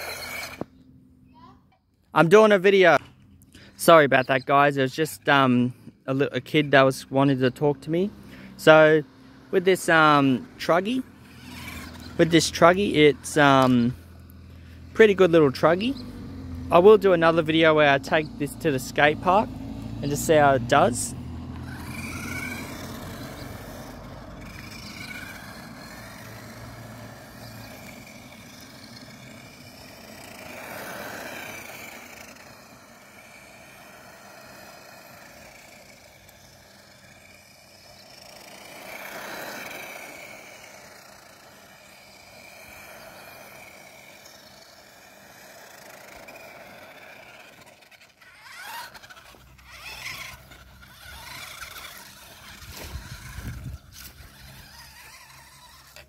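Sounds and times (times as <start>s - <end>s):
toy car motor whining: 0.0s - 1.6s, 2.2s - 56.0s
quick uneven rattle: 21.7s - 56.0s.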